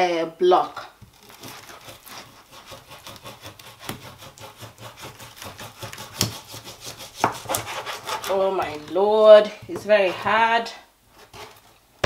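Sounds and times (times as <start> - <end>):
knife sawing through frozen fish: 1.1 - 8.8.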